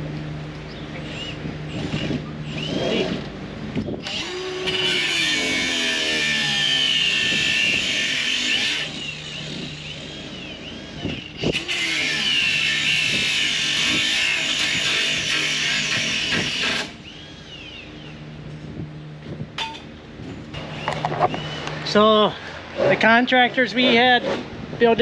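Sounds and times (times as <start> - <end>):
power tool high whine: 1.0 - 3.3, 4.0 - 18.0
power tool running under load: 1.0 - 17.8.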